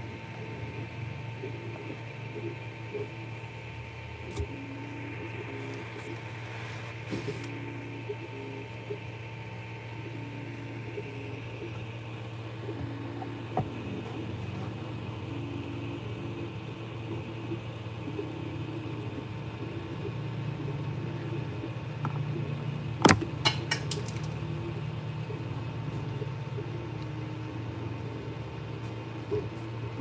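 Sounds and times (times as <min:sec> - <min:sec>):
stepper motor whine: 0:00.0 - 0:23.4
cooling fan hum: 0:00.0 - 0:30.0.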